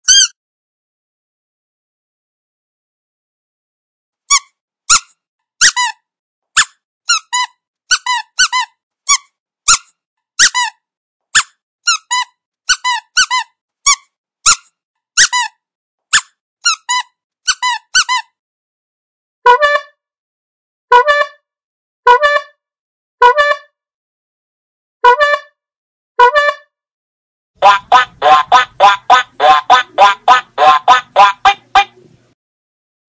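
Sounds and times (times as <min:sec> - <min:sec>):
lower-pitched toy squeak: 0:00.0 - 0:00.4, 0:04.2 - 0:18.4, 0:19.5 - 0:20.0, 0:20.9 - 0:21.4, 0:26.2 - 0:26.7, 0:27.6 - 0:32.0
squeaky dog toy: 0:00.0 - 0:00.4, 0:04.2 - 0:18.4, 0:19.5 - 0:20.0, 0:20.9 - 0:21.4, 0:22.1 - 0:22.6, 0:23.2 - 0:23.7, 0:25.1 - 0:25.6, 0:26.2 - 0:26.7, 0:27.6 - 0:32.0.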